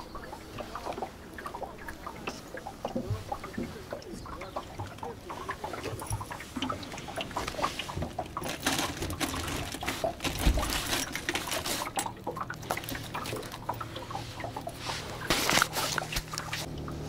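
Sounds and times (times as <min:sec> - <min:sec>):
net mesh rustling: 0:08.4 - 0:12.0.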